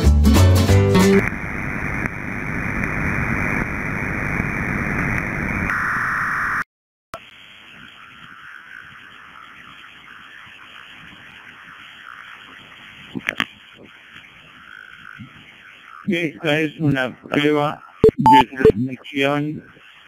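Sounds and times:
dense digital signal hiss: 0:07.2 - 0:20.0
narrow digital data signal: 0:18.0 - 0:18.9.

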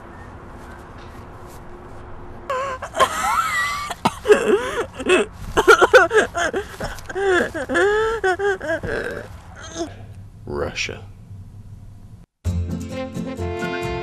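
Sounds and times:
young woman wailing and sobbing: 0:02.5 - 0:10.0.

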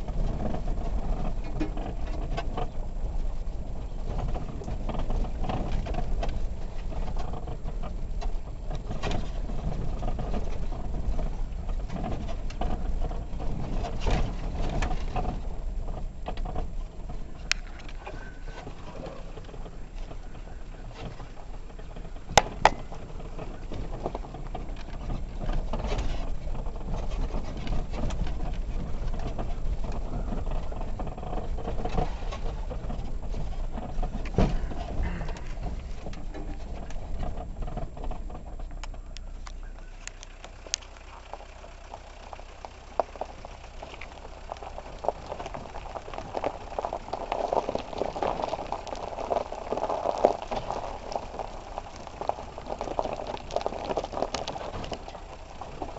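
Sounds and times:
van body knocks and rattles: 0:00.0 - 0:39.1
engine and road rumble: 0:00.0 - 0:55.9.

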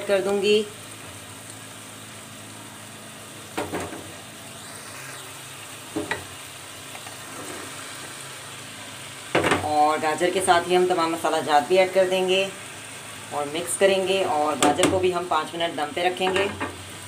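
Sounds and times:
potatoes sizzling in metal pan: 0:00.0 - 0:17.0
vegetables clattering into pan: 0:03.5 - 0:04.2, 0:09.3 - 0:09.8.

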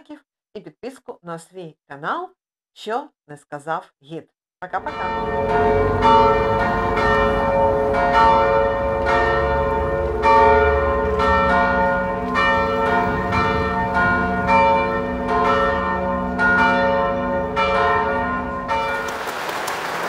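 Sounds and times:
church bells pealing: 0:04.8 - 0:19.3
audience applause: 0:19.0 - 0:20.0.

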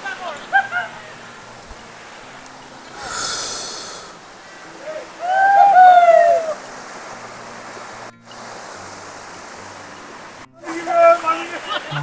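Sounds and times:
stream rushing over rocks: 0:00.0 - 0:12.0
bird call of quick arching notes: 0:02.9 - 0:07.4.

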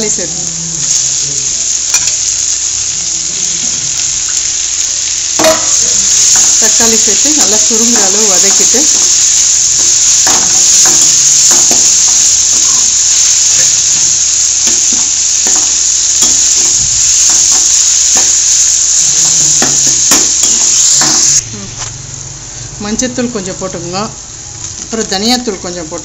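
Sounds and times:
vegetables sizzling in hot oil: 0:00.0 - 0:26.0
steel ladle scraping a pan: 0:05.4 - 0:21.9.

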